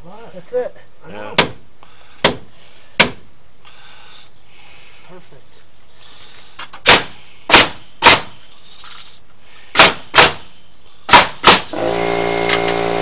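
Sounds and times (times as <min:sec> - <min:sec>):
sharp strikes on wood: 0:01.3 - 0:01.6, 0:02.2 - 0:03.2, 0:06.8 - 0:08.4, 0:09.8 - 0:10.5
motor running: 0:11.8 - 0:13.0.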